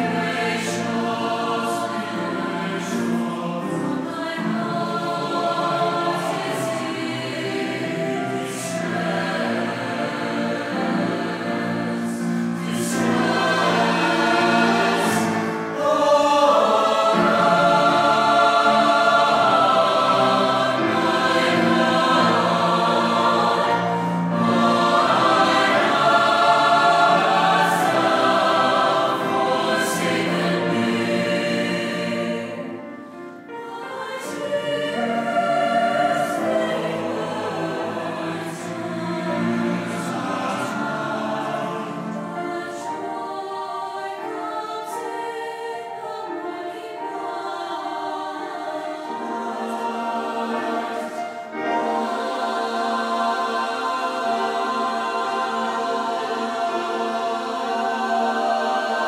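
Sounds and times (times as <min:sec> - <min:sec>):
choir singing: 0:00.0 - 0:59.0.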